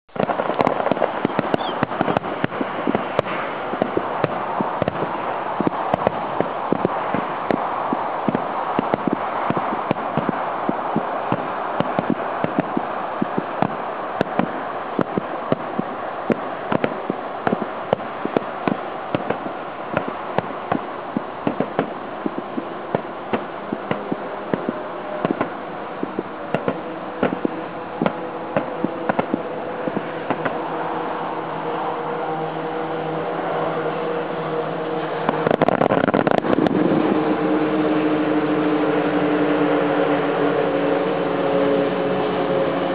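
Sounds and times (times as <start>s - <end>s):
continuous rumble: 0.0s - 42.9s
loud cluster of firework cracks: 0.1s - 30.6s
distant firework bangs: 0.1s - 31.8s
steady multi-pitched hum: 0.1s - 42.9s.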